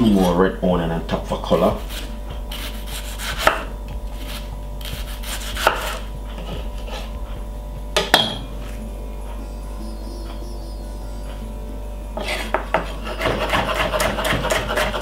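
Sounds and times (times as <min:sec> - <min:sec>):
steady low hum: 0:00.0 - 0:15.0
knife slicing onion: 0:01.8 - 0:07.2, 0:12.2 - 0:15.0.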